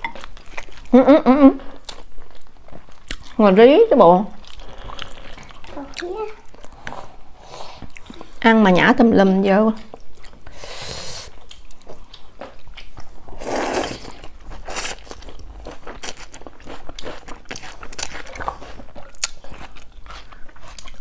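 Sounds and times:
wet chewing with mouth clicks: 0.0s - 1.0s, 1.6s - 3.4s, 4.3s - 8.4s, 11.2s - 21.0s
person slurping noodles: 13.4s - 15.0s.

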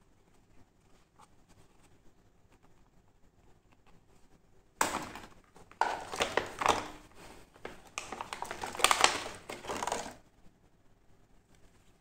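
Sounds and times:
plastic packaging crinkling: 4.8s - 10.2s.

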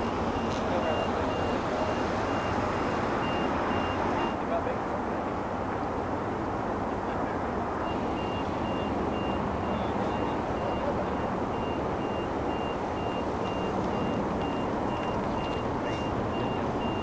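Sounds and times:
reversing beeper: 0.0s - 4.4s, 7.8s - 17.0s
distant jet engines roaring: 0.0s - 17.0s.

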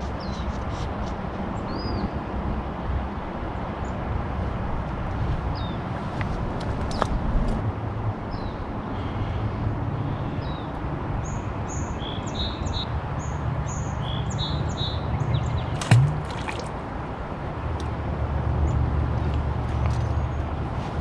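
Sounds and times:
sharp knock: 15.8s - 16.6s.

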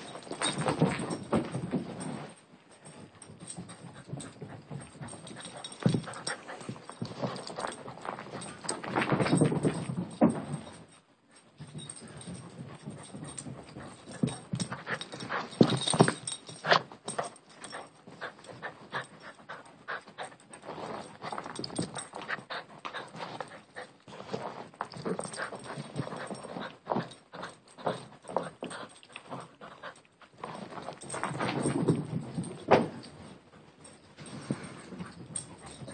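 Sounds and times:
dog panting: 3.4s - 8.7s, 11.8s - 31.1s.

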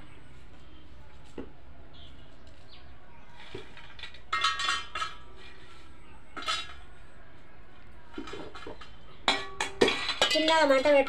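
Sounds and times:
metal plate and pan clinking: 3.4s - 7.0s, 8.1s - 11.0s.

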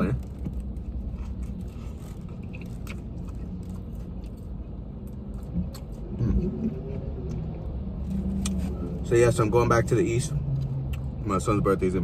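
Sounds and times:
low steady hum: 0.0s - 12.0s
chewing and mouth sounds: 0.5s - 8.8s.

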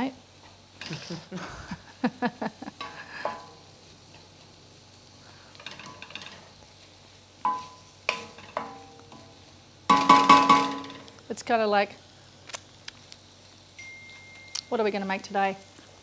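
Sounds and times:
low sizzle: 0.0s - 16.0s
spoon knocking against metal pan: 9.9s - 11.0s.

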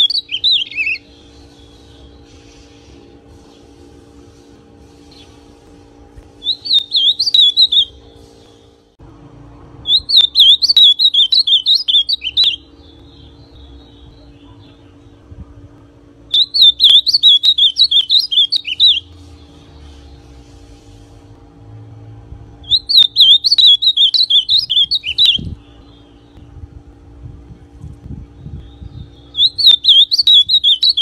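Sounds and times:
bird singing: 0.0s - 2.8s, 6.4s - 8.8s, 9.8s - 15.3s, 16.2s - 20.4s, 22.6s - 26.6s, 28.3s - 31.0s
faint steady hum: 0.0s - 31.0s.

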